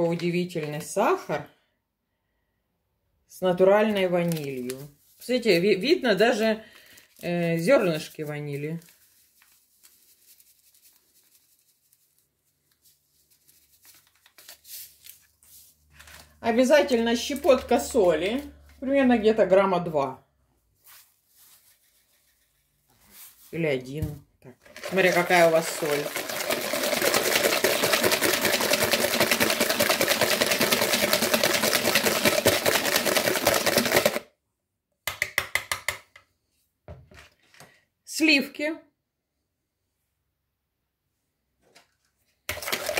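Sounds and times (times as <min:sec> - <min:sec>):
paper sachet crinkling: 0:04.1 - 0:05.2, 0:06.7 - 0:16.4, 0:20.9 - 0:22.6, 0:24.6 - 0:34.2
whisk clattering in bowl: 0:24.7 - 0:34.2, 0:42.5 - 0:42.9.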